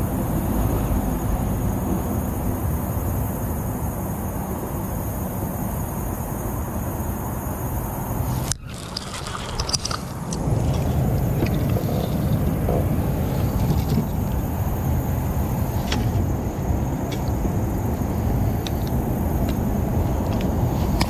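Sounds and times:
fish splashing: 8.3 - 16.2
low rumble: 9.6 - 20.7.

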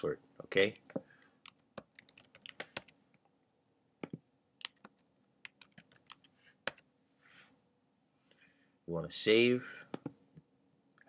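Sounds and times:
keyboard keystroke clicks: 1.5 - 2.9.

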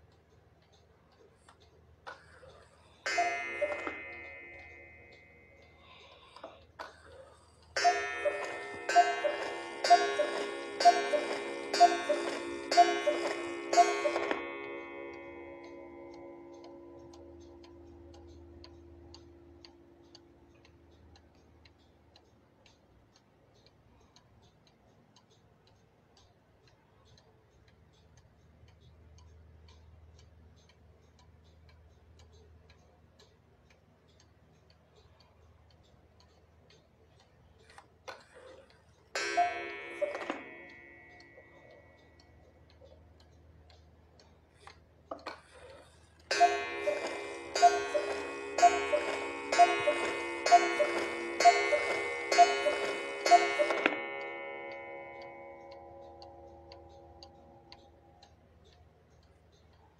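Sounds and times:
clock ticking: 0.0 - 59.9
striking mechanism clicks: 0.0 - 59.9
cuckoo call: 3.1 - 4.2, 7.8 - 15.3, 39.2 - 40.6, 46.3 - 54.6.

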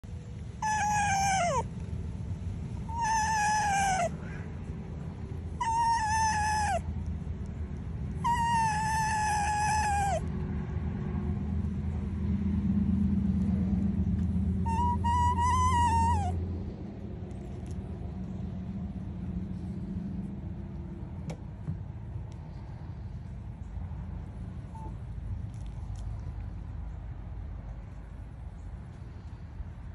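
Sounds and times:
low steady rumble: 0.0 - 29.9
fox whining: 0.6 - 1.9, 2.7 - 4.5, 5.4 - 10.4, 14.6 - 16.4.

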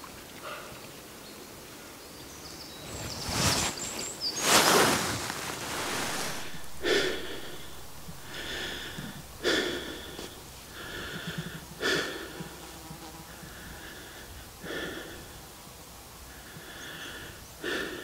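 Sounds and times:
person breathing heavily: 4.8 - 15.5, 16.2 - 18.0.

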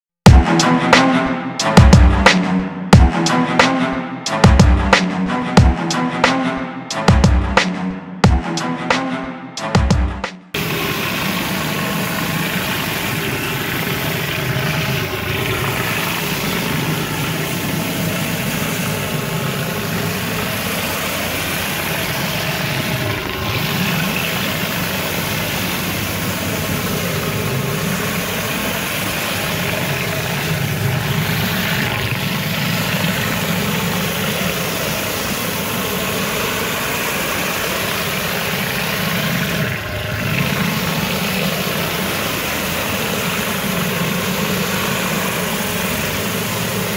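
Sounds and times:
pressure washer engine drone: 0.0 - 46.9
water spray hissing: 10.6 - 46.9.

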